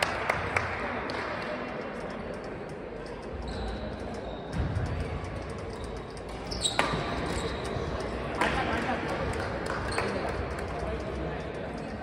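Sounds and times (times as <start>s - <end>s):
high squeak: 5.8s - 7.8s
rackets striking shuttlecocks: 6.2s - 7.8s.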